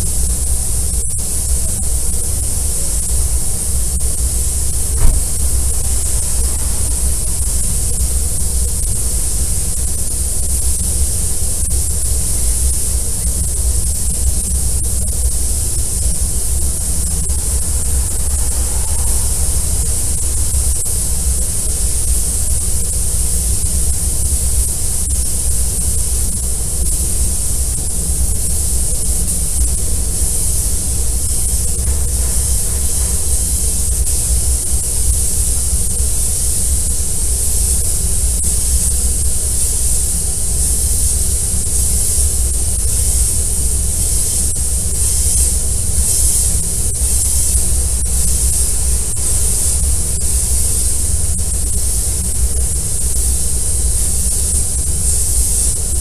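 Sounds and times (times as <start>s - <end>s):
spray guns hissing: 4.0s - 9.5s, 16.2s - 21.6s, 30.3s - 42.5s
low rumble: 4.1s - 8.7s.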